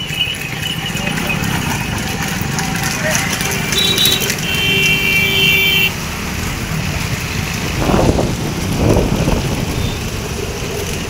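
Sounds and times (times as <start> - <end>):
road and engine noise: 0.0 - 11.0
wind buffeting microphone: 6.5 - 11.0.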